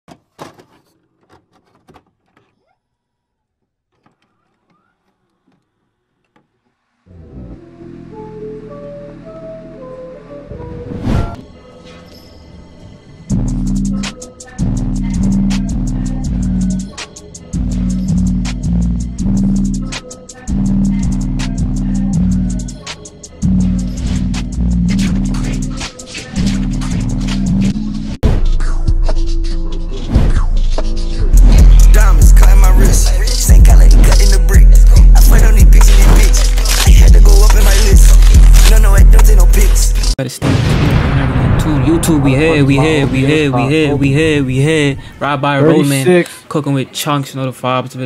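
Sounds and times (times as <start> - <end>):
heavy bass line: 31.2 - 40.2, 41.4 - 45.1.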